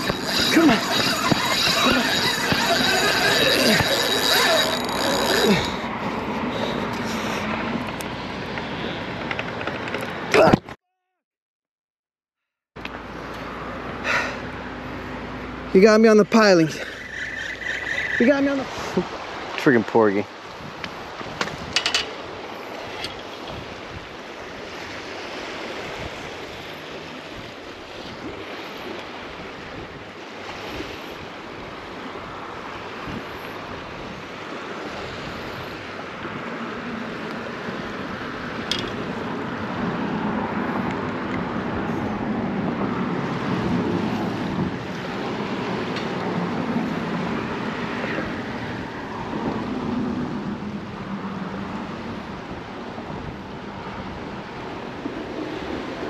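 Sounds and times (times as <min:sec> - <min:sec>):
sea water washing: 0:00.0 - 0:09.0, 0:14.4 - 0:21.2, 0:22.1 - 0:56.0
wind buffeting microphone: 0:20.4 - 0:56.0.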